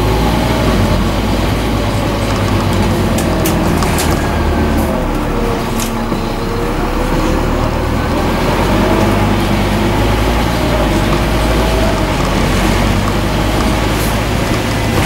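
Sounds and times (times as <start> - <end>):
bus diesel engine drone: 0.0 - 15.0.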